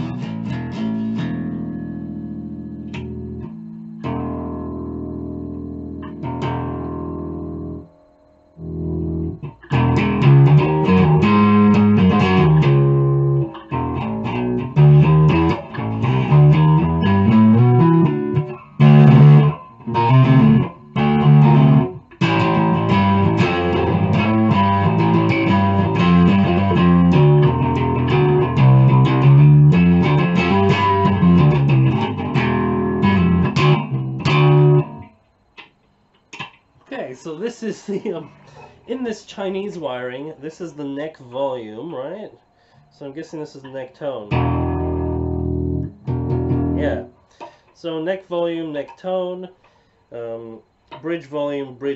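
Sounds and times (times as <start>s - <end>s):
electric bass plucked notes: 0.0s - 7.9s, 8.6s - 35.2s, 44.3s - 47.2s.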